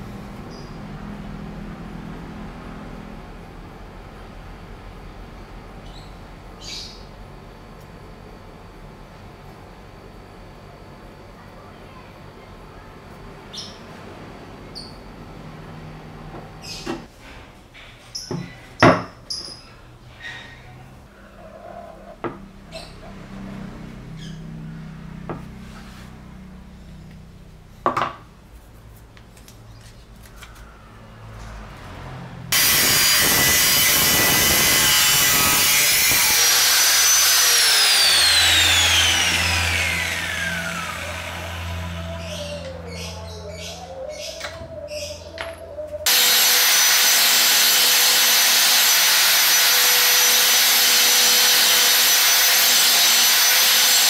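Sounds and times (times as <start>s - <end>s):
angle grinder cutting steel: 32.5s - 42.8s, 46.1s - 54.0s
grinder disc spinning down: 32.5s - 42.8s, 46.1s - 54.0s.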